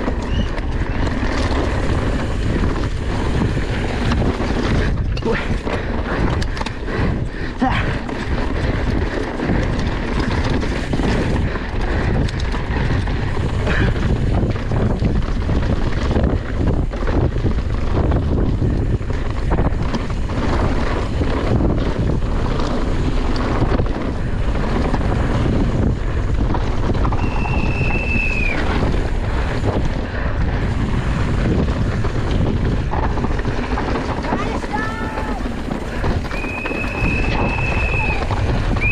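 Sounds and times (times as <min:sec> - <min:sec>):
bike rumbling over rough ground: 0:00.0 - 0:38.9
wind buffeting microphone: 0:00.0 - 0:38.9.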